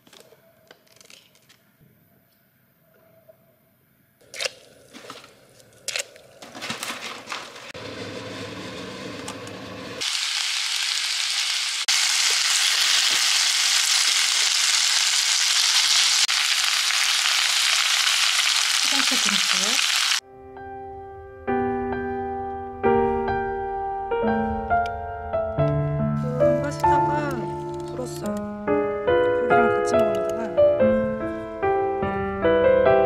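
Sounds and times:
pasta sizzling in a pan: 0:09.8 - 0:20.2.

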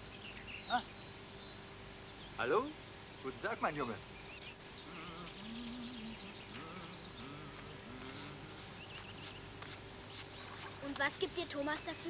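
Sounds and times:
flying insect buzzing: 0:04.7 - 0:11.0.

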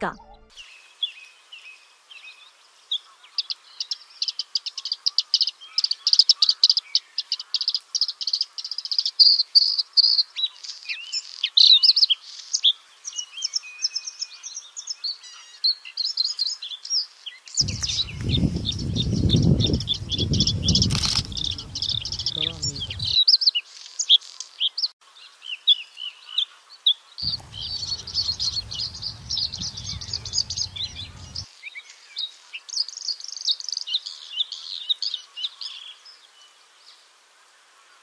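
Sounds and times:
bird singing trills: 0:17.6 - 0:23.4, 0:27.2 - 0:31.5
low rumble: 0:27.3 - 0:31.4.

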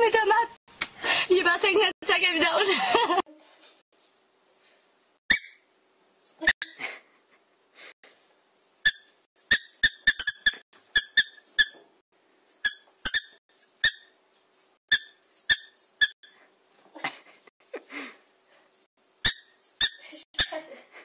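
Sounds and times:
squeaky toy ball squeaks: 0:05.3 - 0:05.6, 0:08.8 - 0:11.8, 0:12.6 - 0:14.1, 0:14.9 - 0:16.4, 0:19.2 - 0:20.6.

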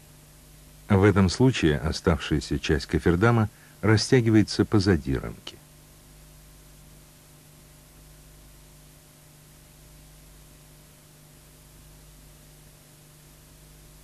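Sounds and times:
low electrical hum: 0:00.0 - 0:14.0
steady hiss: 0:00.0 - 0:14.0.

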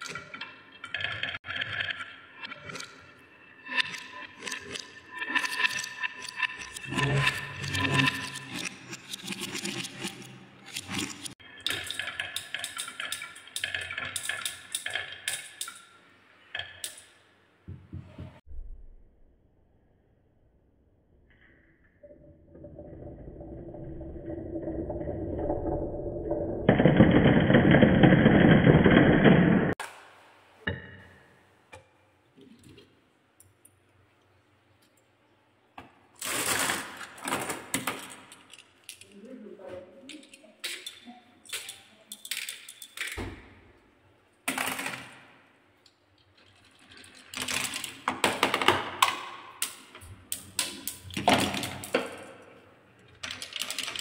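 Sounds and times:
marbles clacking on wooden track: 0:00.0 - 0:16.0, 0:44.5 - 0:45.3, 0:46.2 - 0:52.5, 0:53.1 - 0:54.0.

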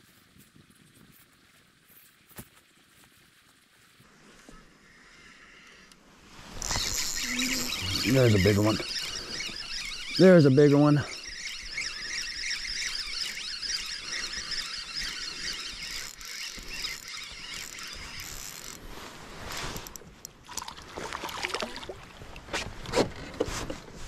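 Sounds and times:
fishing reel whirring: 0:06.6 - 0:18.9
rustling: 0:13.0 - 0:20.2
fish splashing: 0:20.5 - 0:22.5.

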